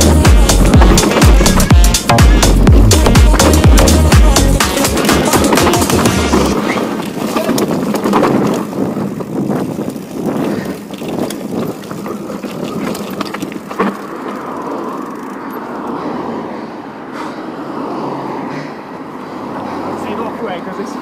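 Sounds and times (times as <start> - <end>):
bike rattling and knocking: 0.0 - 15.7
bike tyres over dirt and stones: 0.0 - 16.0.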